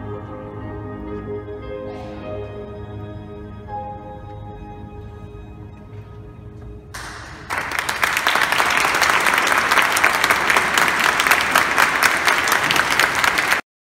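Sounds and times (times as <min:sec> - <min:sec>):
audience applauding: 0:07.0 - 0:13.6.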